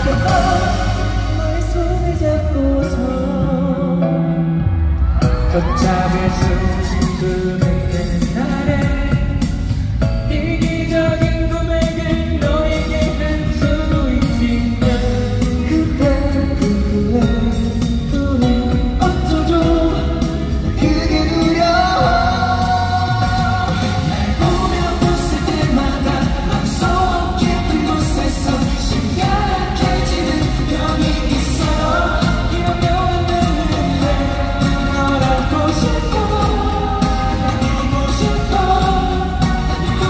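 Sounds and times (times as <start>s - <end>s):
backing music with drum beat: 0.0s - 4.1s, 5.1s - 40.0s
man singing into microphone: 0.0s - 4.6s, 5.2s - 40.0s.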